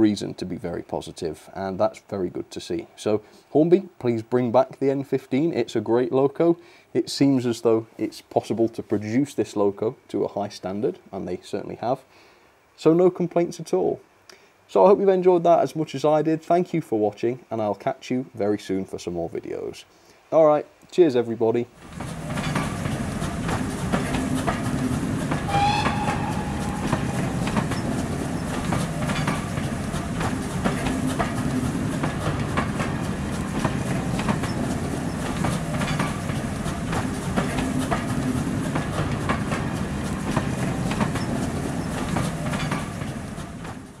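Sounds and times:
train rumble: 21.7s - 44.0s
train wheels clicking over rail joints: 21.8s - 44.0s
train whistle: 25.4s - 28.6s.

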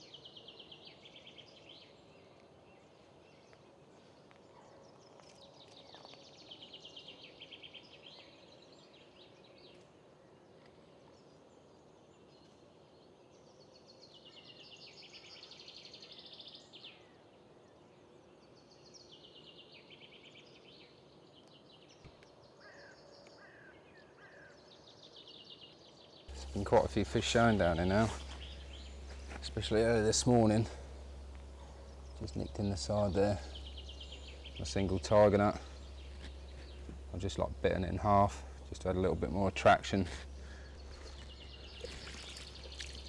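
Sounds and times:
bird chirps: 18.4s - 43.0s
songbird trilling: 26.3s - 43.0s.

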